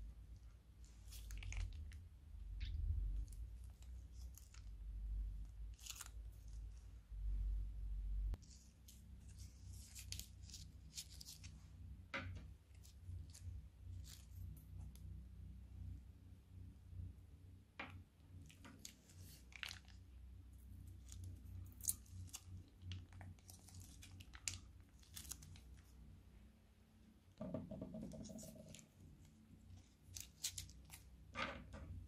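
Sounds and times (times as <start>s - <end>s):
plastic bags crinkling: 18.7s - 20.0s, 21.8s - 25.8s.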